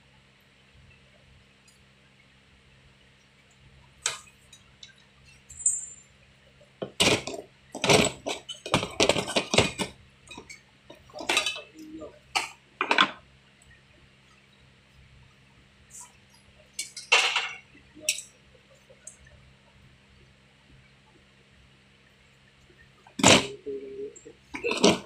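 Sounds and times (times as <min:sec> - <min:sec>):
faint low hum: 0:00.0 - 0:25.0
metal clinks of hand tools: 0:05.5 - 0:06.0.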